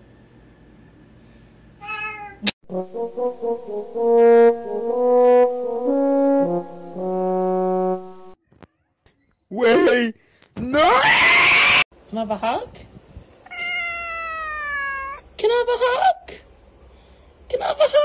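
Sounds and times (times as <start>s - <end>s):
slow brass music: 2.6s - 8.4s
cat meowing: 13.4s - 15.2s.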